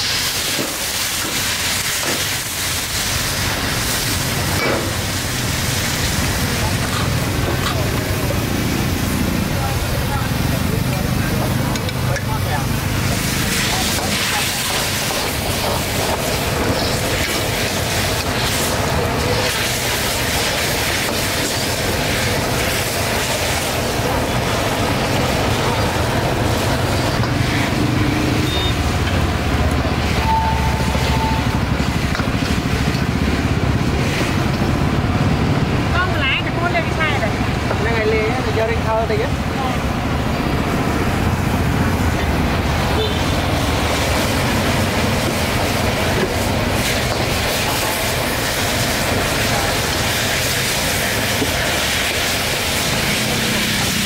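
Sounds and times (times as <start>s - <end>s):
food sizzling in wok: 0.0s - 54.0s
gas burner running: 0.0s - 54.0s.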